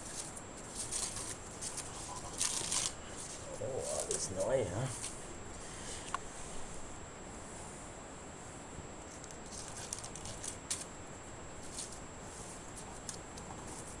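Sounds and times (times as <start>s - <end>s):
bark chips rustling and clicking: 0.0s - 5.2s, 9.1s - 10.9s, 12.7s - 14.0s.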